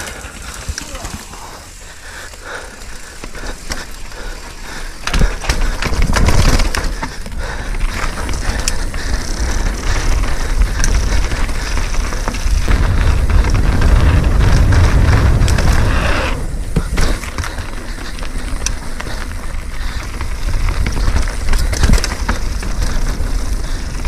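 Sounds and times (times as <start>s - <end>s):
bike chain and frame rattling: 0.0s - 24.0s
tyres crunching over dirt and rock: 2.8s - 24.0s
wind rumble on microphone: 8.0s - 24.0s.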